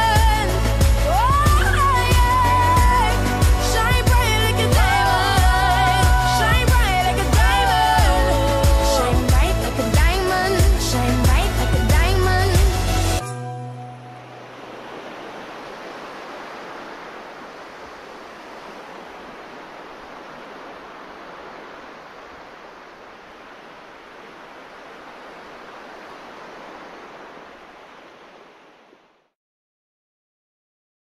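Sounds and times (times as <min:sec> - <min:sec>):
steady rushing noise: 0:14.2 - 0:29.2.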